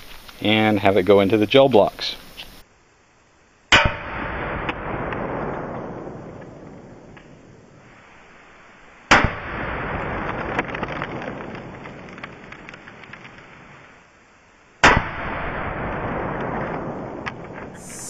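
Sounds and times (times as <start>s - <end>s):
rifle shots: 3.7s - 6.3s, 9.1s - 10.6s, 14.8s - 16.8s.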